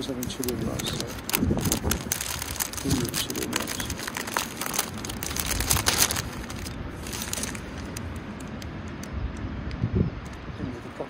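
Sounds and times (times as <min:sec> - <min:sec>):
foil pouch crinkling: 0:00.0 - 0:08.5
wind rumble on microphone: 0:00.0 - 0:11.0.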